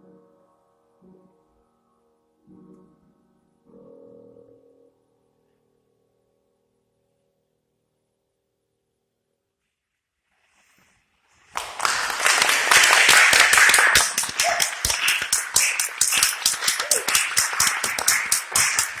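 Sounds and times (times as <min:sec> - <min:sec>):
audience applauding: 0:11.5 - 0:19.0.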